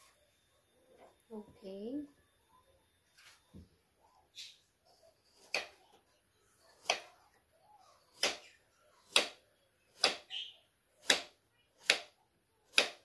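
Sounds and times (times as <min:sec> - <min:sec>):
knife chopping on wooden board: 0:05.4 - 0:05.8, 0:08.2 - 0:08.5, 0:09.1 - 0:09.4, 0:10.0 - 0:10.3, 0:11.0 - 0:12.1, 0:12.7 - 0:13.0.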